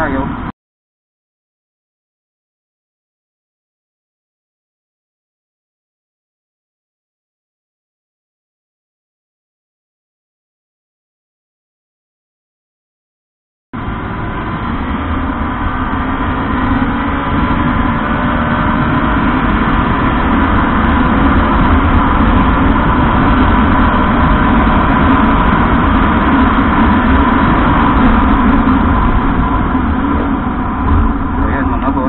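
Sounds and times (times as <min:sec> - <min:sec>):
heavy low rumble: 0:00.0 - 0:00.5, 0:13.8 - 0:32.0
motorcycle engine running: 0:13.8 - 0:32.0.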